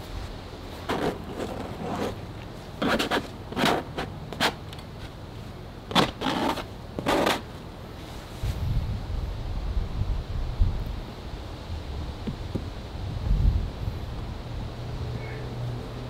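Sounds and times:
short scraping strokes: 0.8 - 2.2.

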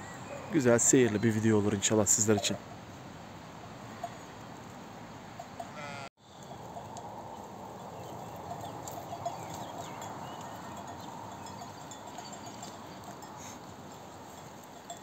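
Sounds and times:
steady outdoor hiss: 0.0 - 15.0
sheep bleating: 5.7 - 6.1.

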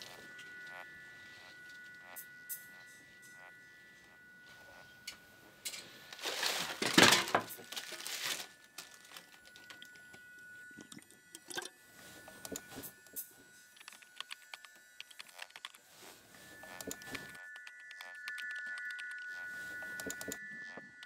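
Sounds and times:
crinkling and rustling: 5.7 - 10.3.

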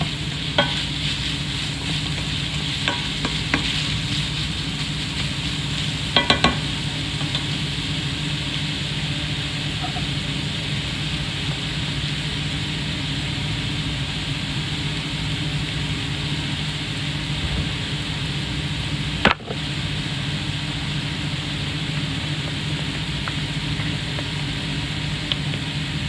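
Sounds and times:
spatula stirring: 0.0 - 7.5
food frying in a wok: 0.0 - 26.0
mechanical hum: 0.0 - 26.0.

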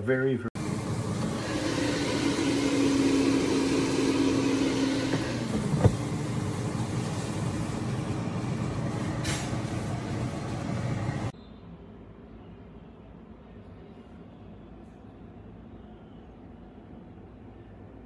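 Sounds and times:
air fryer fan whirring: 0.6 - 11.4.

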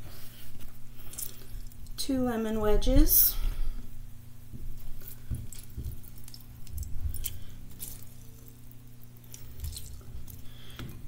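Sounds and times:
lemon squelching: 4.7 - 10.8.

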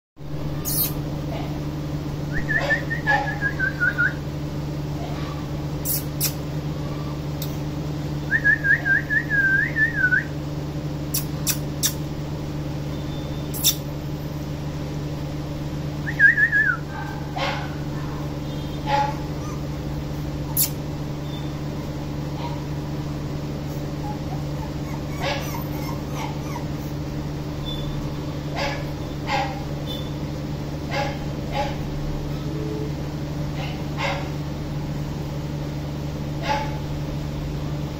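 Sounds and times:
steady low hum: 0.2 - 37.9
puppy whimpering: 18.9 - 20.8, 23.6 - 27.9.

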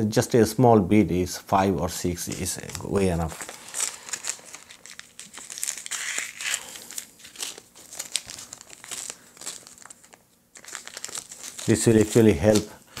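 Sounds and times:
plastic packet crinkling: 2.2 - 13.0.

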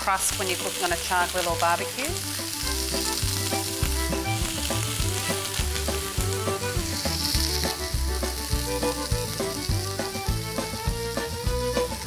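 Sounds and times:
meat sizzling on grill pan: 0.0 - 12.0
background music with steady beat: 2.2 - 12.0.

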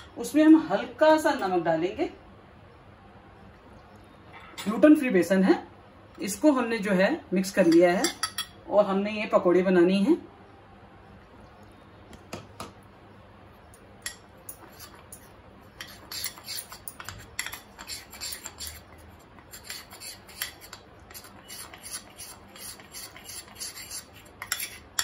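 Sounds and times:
spoon scraping glass bowl: 14.1 - 25.0.

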